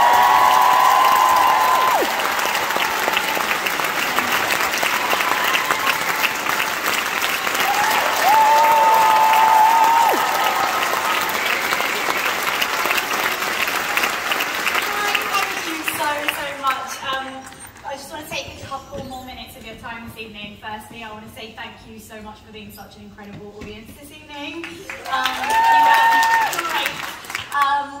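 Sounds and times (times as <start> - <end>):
crowd cheering: 0.0 - 17.0, 24.8 - 27.4
audience applauding: 0.0 - 17.8, 24.6 - 27.6.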